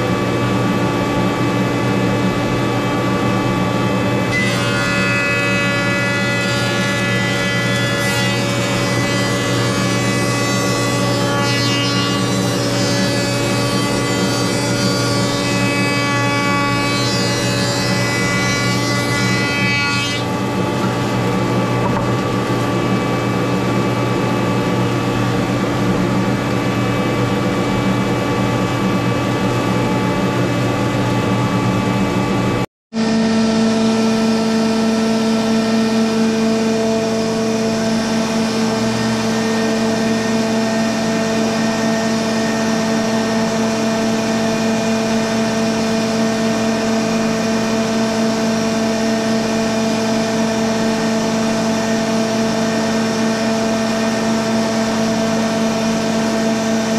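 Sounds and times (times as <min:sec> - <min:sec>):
jointer and dust collector running: 0:00.0 - 0:32.4, 0:33.0 - 0:56.9
motor humming steadily: 0:00.0 - 0:56.9
jointer cutting board: 0:03.9 - 0:27.6.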